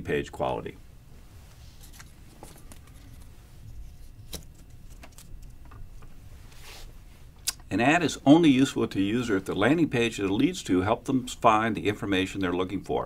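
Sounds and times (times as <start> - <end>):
low room rumble: 0.0 - 13.0
faint handling sounds: 1.1 - 7.4.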